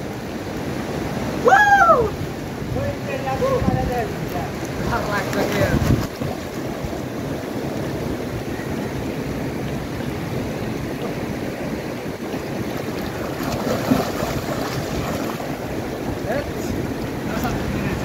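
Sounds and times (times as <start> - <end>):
river water rushing: 0.0 - 18.0
wind rumbling on microphone: 0.0 - 18.0
swimmers splashing: 12.7 - 15.9.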